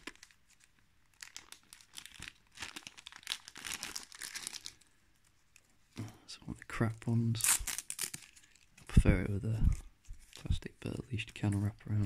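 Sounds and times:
plastic bag crinkling: 0.0 - 5.7, 7.3 - 8.9.

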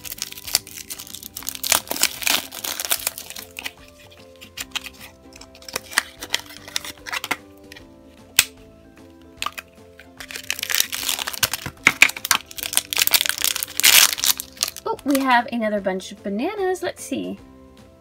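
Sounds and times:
foil bags crinkling: 0.0 - 7.4, 9.4 - 15.3
soft background music: 0.0 - 18.0.

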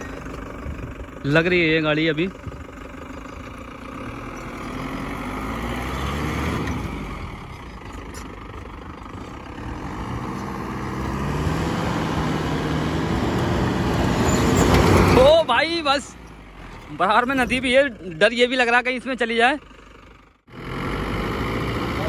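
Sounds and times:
pickup truck engine revving: 3.7 - 7.5, 9.2 - 16.7, 20.4 - 22.0.

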